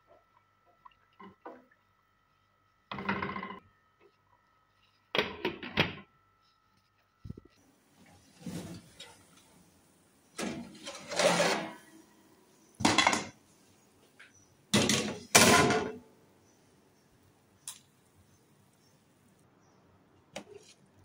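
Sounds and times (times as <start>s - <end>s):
metal baking tray scraping and clattering: 8.2s - 9.4s, 10.4s - 12.0s, 14.8s - 16.0s.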